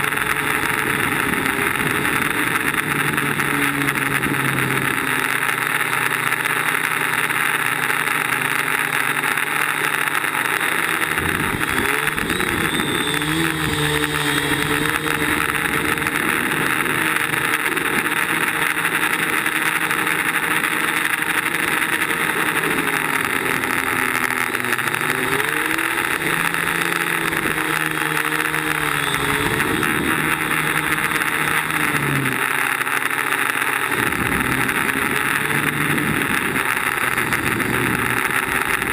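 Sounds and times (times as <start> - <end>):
drone propellers buzzing: 0.0 - 38.9.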